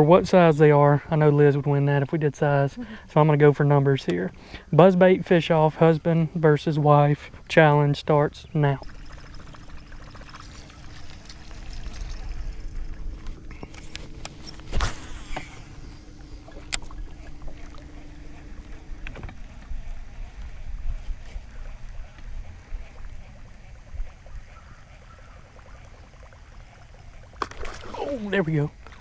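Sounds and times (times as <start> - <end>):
steady low hum: 0.0 - 29.0
buzzbait blade churning water: 8.6 - 29.0.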